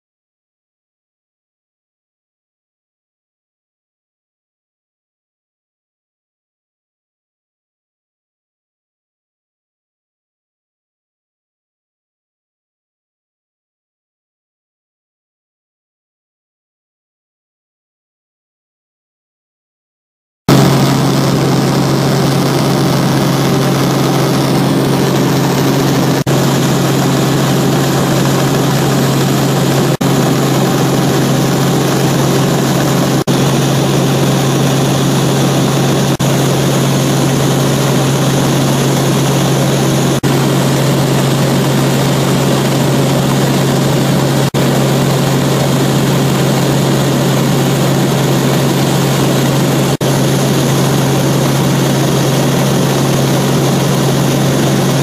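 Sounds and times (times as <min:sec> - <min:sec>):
helicopter engine and rotor drone: 0:20.5 - 0:55.0.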